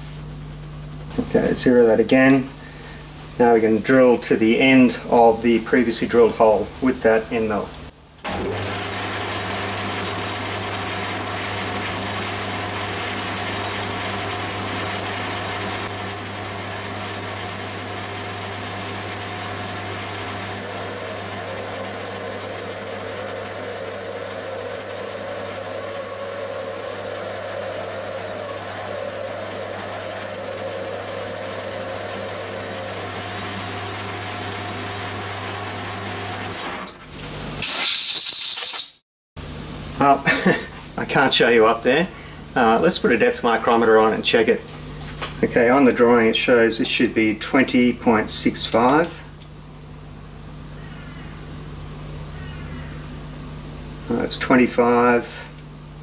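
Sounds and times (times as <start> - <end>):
lathe humming: 0.0 - 36.7, 39.8 - 56.0
spindle stopping noise: 1.0 - 37.0, 40.0 - 56.0
high cutting tones: 15.8 - 33.7.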